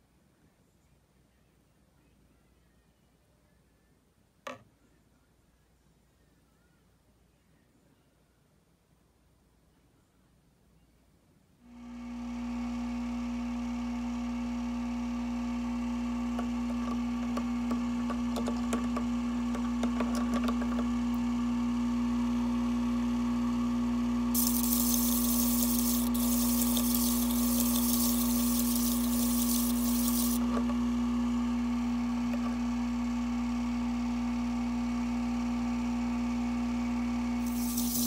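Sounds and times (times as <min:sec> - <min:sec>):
motor humming: 0:15.2 - 0:33.6, 0:37.3 - 0:38.0
scratchy grinding ticks: 0:24.4 - 0:30.4, 0:37.5 - 0:38.0
steady hiss: 0:24.4 - 0:30.4, 0:37.4 - 0:38.0.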